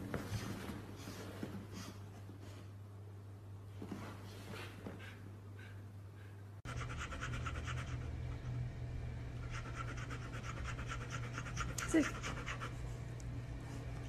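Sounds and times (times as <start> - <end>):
dog panting: 4.6 - 8.1, 9.4 - 12.8.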